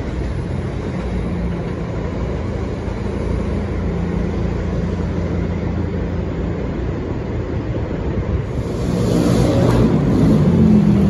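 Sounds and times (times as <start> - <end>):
faint train hum: 0.0 - 11.0
train rumbling on elevated tracks: 0.0 - 11.0.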